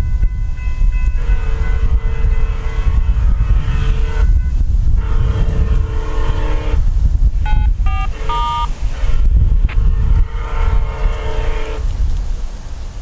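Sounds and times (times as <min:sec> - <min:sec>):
distant train horn blasts: 0:00.0 - 0:12.1
wind buffeting microphone: 0:00.0 - 0:13.0
short higher tones: 0:07.4 - 0:08.8.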